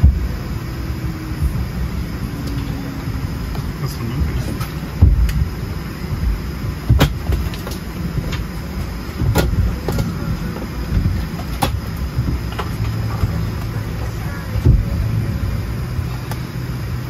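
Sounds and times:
low rumble inside vehicle: 0.0 - 17.0
sharp knocks: 6.1 - 8.5, 9.2 - 10.2.

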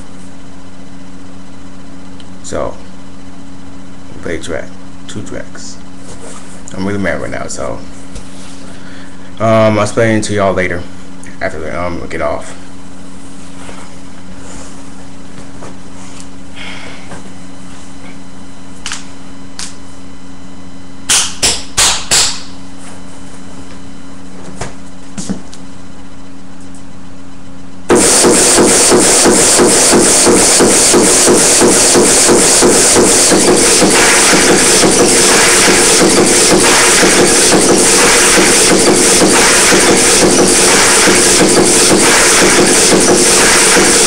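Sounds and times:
room hum: 0.0 - 44.0
loud distorted dance music: 27.9 - 44.0
loud thumps: 27.9 - 44.0.

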